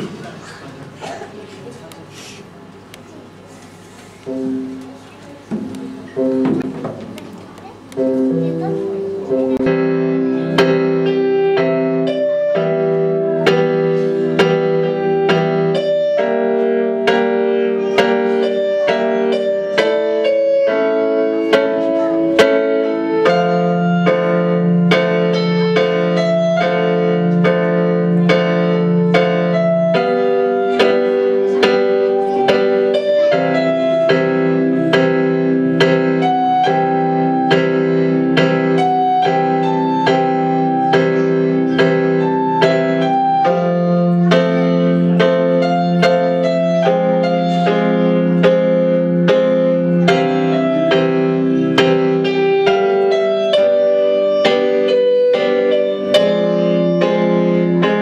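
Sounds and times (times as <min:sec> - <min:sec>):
electronic keyboard piano melody: 0:04.2 - 0:58.0.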